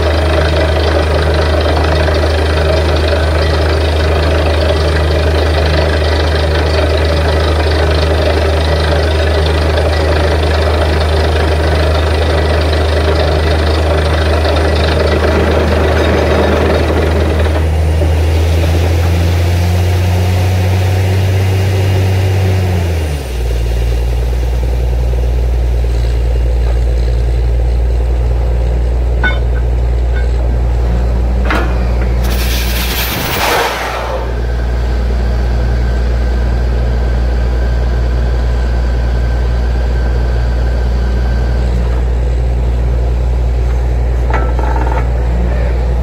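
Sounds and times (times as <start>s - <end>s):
drilling rig engine running: 0.0s - 46.0s
rushing hiss of air and water: 32.2s - 34.4s.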